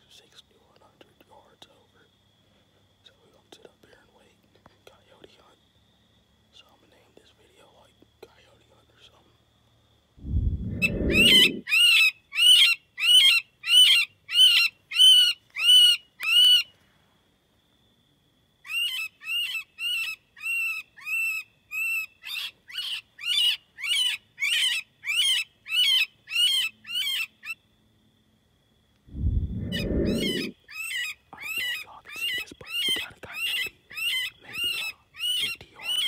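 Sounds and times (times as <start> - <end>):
handling noise rumble: 10.2 - 11.6, 29.1 - 30.5
electronic prey distress cries: 10.8 - 11.6, 29.6 - 30.5.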